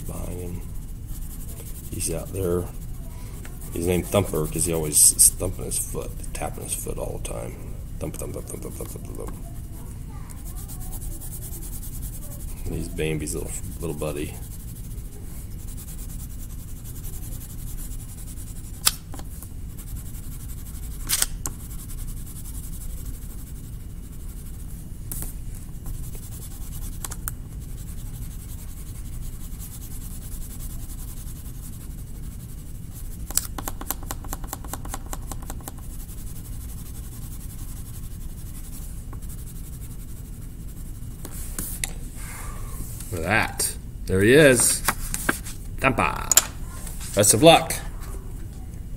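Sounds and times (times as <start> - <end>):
colored pencil scratching on paper: 0.0 - 41.9
low room hum: 0.0 - 48.9
pencil tapping: 25.1 - 27.4, 33.2 - 35.9.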